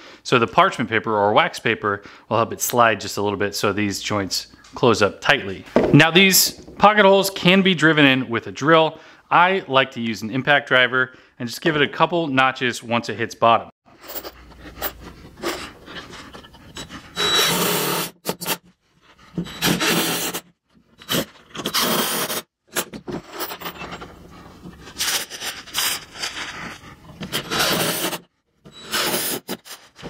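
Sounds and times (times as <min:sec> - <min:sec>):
impact driver driving screws: 0:17.1 - 0:18.6, 0:19.4 - 0:20.4, 0:21.0 - 0:22.9, 0:27.2 - 0:30.0.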